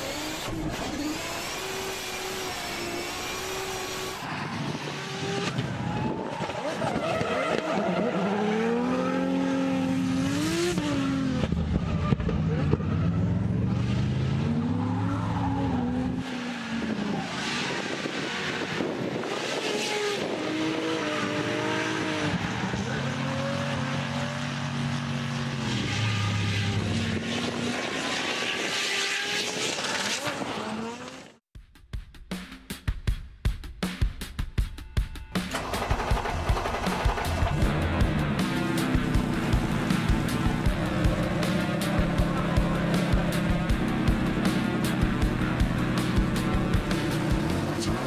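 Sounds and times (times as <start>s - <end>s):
car engine revving: 0.0s - 31.4s, 35.5s - 48.0s.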